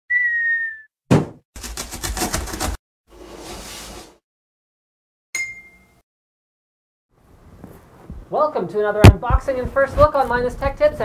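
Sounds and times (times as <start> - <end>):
loud thump: 1.1 - 1.4.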